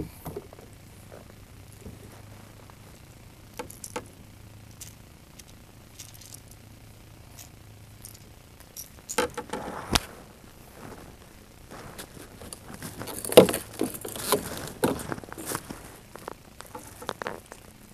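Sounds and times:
fishing tackle clicking and rattling: 3.5 - 6.6, 7.3 - 9.6.

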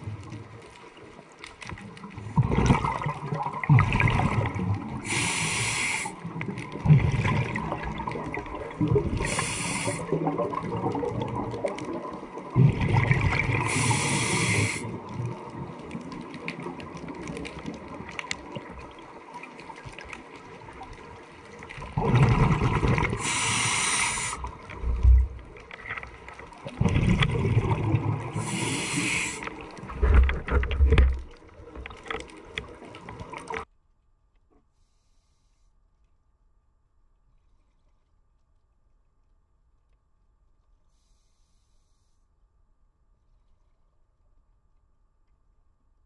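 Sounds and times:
underwater water noise: 0.0 - 33.7
regulator hiss and bubbles: 2.1 - 19.4, 20.4 - 25.7, 26.3 - 30.0.

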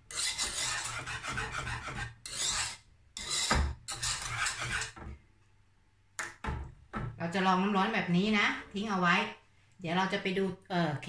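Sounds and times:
whisk scraping a saucepan: 0.0 - 5.1.

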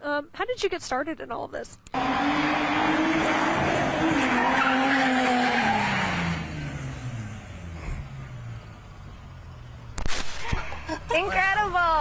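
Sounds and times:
tyres squealing: 2.0 - 6.4
car engine revving high: 2.0 - 8.6.

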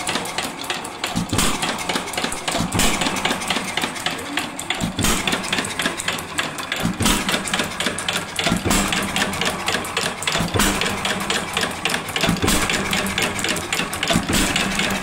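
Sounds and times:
engine firing thumps: 1.2 - 1.8, 6.8 - 7.4, 8.5 - 9.2, 12.2 - 13.0, 14.1 - 15.0.

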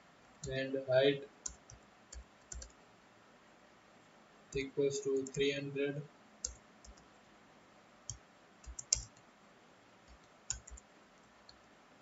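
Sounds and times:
keyboard keys clicking: 1.4 - 2.8, 6.4 - 7.1, 8.1 - 9.2, 10.1 - 10.8.

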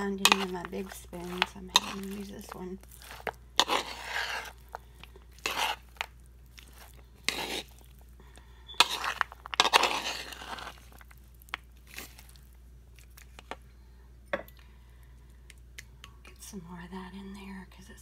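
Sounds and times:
spoon stirring wet salad: 0.0 - 13.6.

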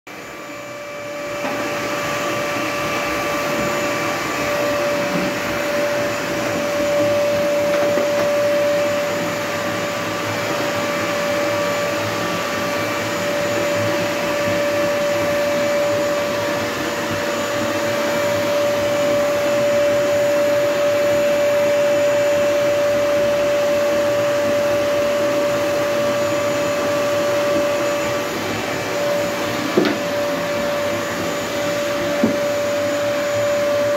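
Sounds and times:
vacuum cleaner running: 0.1 - 33.9.

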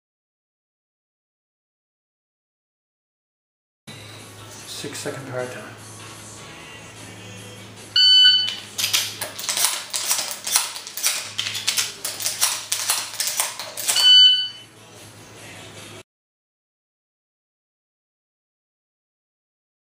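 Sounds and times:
shot timer beep: 8.0 - 8.6, 13.9 - 14.7
shotgun shells clicking into magazine: 8.8 - 14.0.

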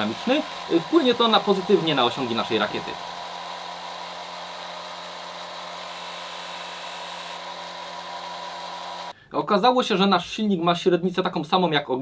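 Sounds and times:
disc sander motor humming: 0.0 - 9.1.

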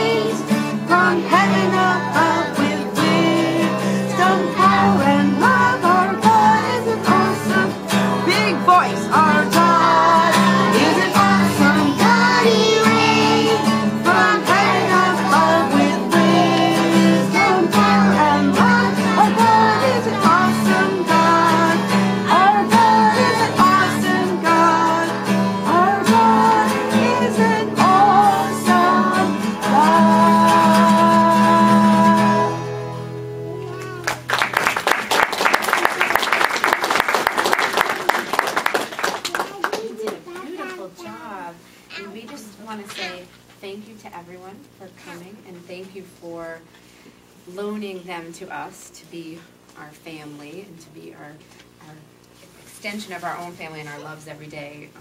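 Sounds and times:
young children singing: 0.0 - 32.6
guitar accompaniment: 0.0 - 43.4
applause: 33.7 - 40.4.

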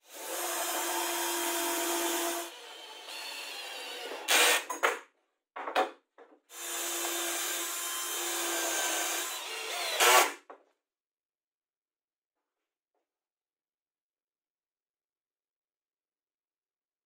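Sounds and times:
drill drilling plywood: 0.1 - 4.7, 6.5 - 10.4
cordless drill driving screws: 0.2 - 4.7, 6.6 - 10.4.

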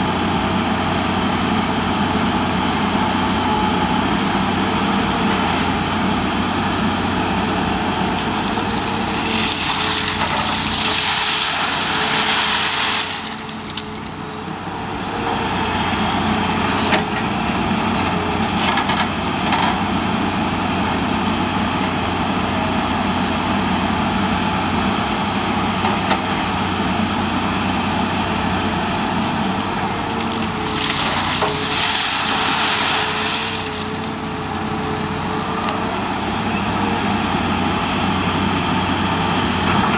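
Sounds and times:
excavator diesel engine running: 0.0 - 39.9
gravel pouring from bucket: 8.2 - 14.2, 30.1 - 35.0.

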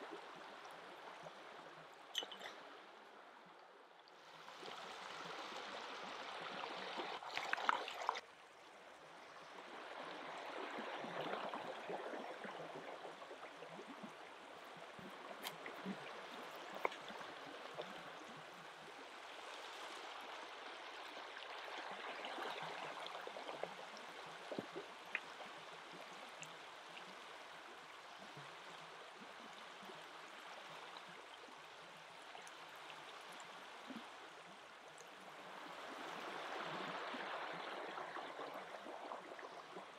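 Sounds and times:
river flowing: 0.0 - 23.4.

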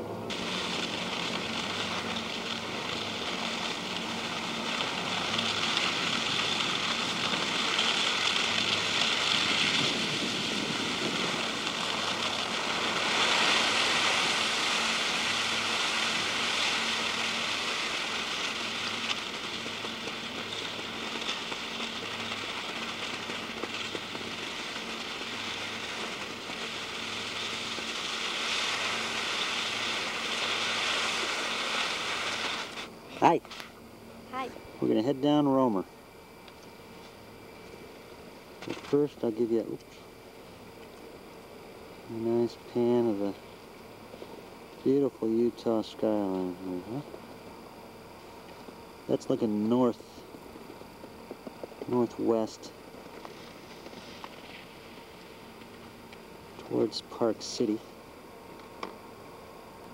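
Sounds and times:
skis sliding over snow: 0.3 - 33.7, 38.6 - 39.8, 44.2 - 47.1, 49.1 - 50.2, 51.4 - 55.9, 56.5 - 57.9.

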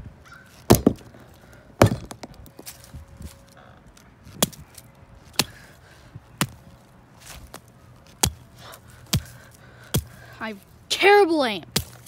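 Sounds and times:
axe chopping marshmallows: 0.7 - 1.2, 9.1 - 10.2, 11.8 - 12.0.

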